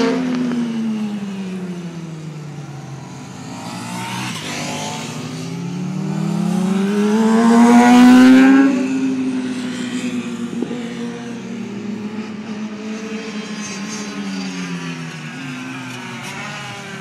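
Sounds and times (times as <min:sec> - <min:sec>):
motorcycle engine accelerating: 0:00.0 - 0:17.0.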